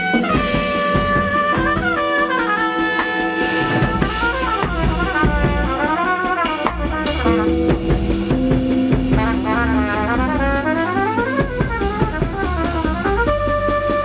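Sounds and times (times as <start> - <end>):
bass: 0.0 - 14.0
drum kit: 0.0 - 14.0
trumpet melody: 0.0 - 14.0.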